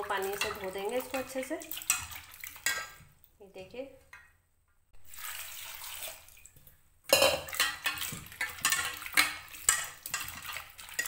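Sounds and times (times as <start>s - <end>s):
water pouring into a pot: 0.0s - 3.1s, 5.0s - 11.0s
potatoes clattering against pot: 7.1s - 11.0s.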